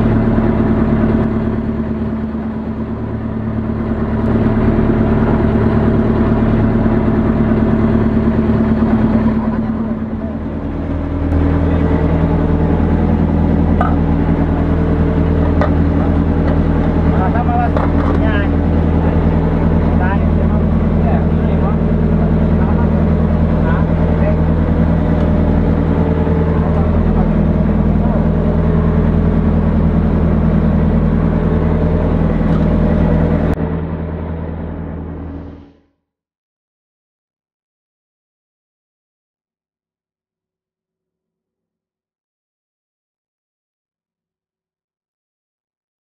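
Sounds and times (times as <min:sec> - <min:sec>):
boat engine droning: 0:00.0 - 0:35.9.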